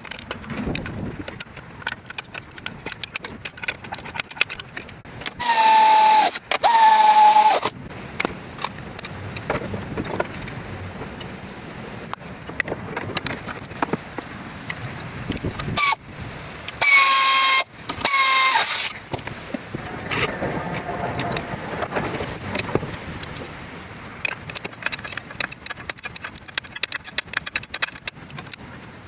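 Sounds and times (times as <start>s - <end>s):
metal parts clicking and knocking: 0.0s - 7.7s, 24.2s - 28.7s
air ratchet whine: 5.4s - 7.8s, 15.8s - 16.0s, 16.7s - 19.0s.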